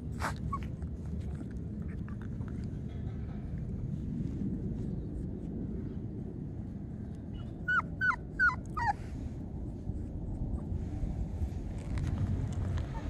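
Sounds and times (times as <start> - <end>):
puppy whining: 0.0 - 2.5, 7.4 - 9.1
steady low rumble: 0.0 - 13.0.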